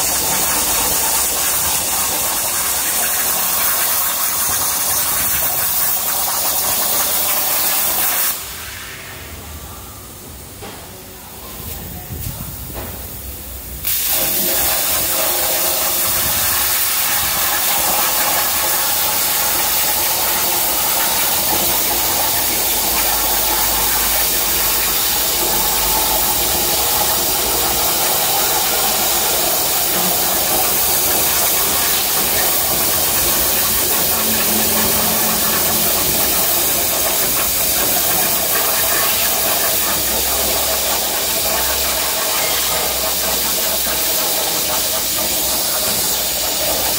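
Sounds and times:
plasma torch hissing: 0.0 - 9.4, 12.2 - 46.9.

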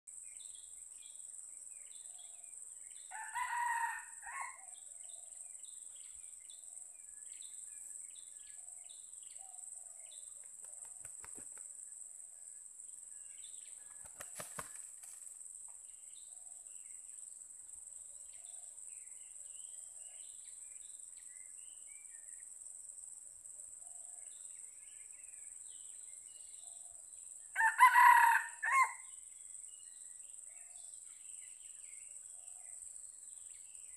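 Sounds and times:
rooster crowing: 3.1 - 4.7, 27.6 - 29.0.

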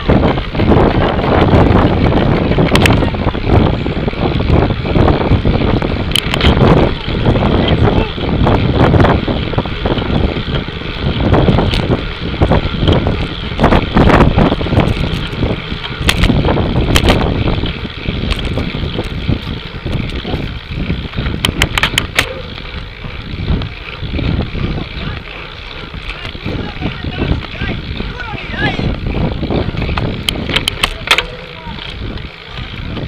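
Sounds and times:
wind buffeting microphone: 0.0 - 33.0
sharp clicks and knocks: 2.4 - 3.0, 6.0 - 6.8, 14.8 - 17.3, 18.2 - 20.2, 21.1 - 22.6, 29.8 - 32.0.

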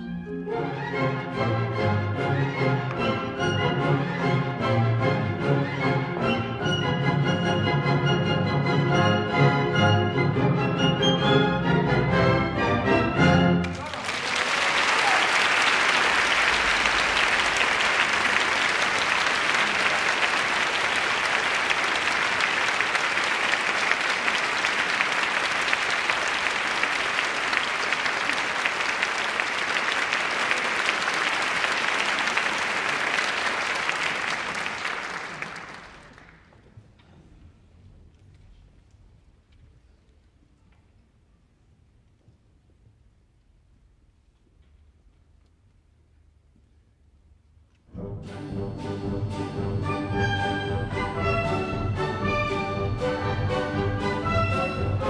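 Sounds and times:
audience applauding: 13.6 - 36.6.

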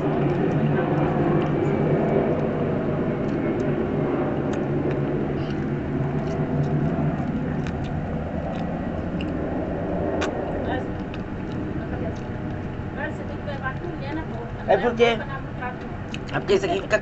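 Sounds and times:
low mechanical rumble: 0.0 - 17.0
faint eating clicks: 4.4 - 12.8.

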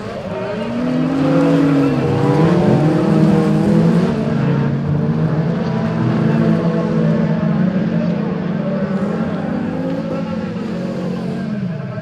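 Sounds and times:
race car engines revving: 0.0 - 12.0.

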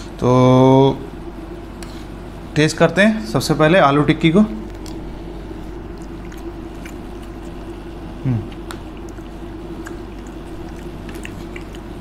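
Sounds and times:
steady background hum: 0.0 - 12.0
faint chewing: 4.6 - 12.0
man humming mm: 8.2 - 8.7.

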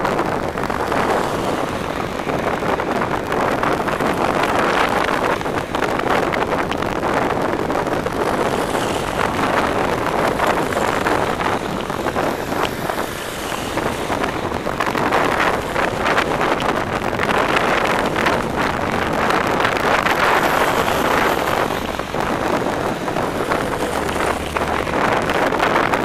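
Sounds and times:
cars passing close: 0.0 - 26.0
wind on microphone: 0.0 - 26.0.

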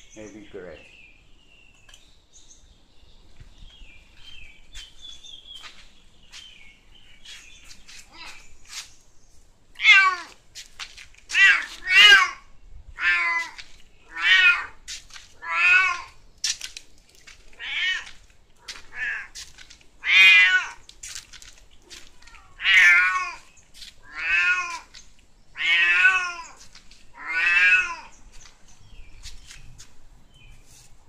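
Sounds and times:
cat meowing: 9.8 - 10.4, 11.3 - 12.4, 13.0 - 14.8, 15.4 - 16.2, 17.6 - 18.2, 20.0 - 20.8, 22.1 - 24.9, 25.6 - 28.1.

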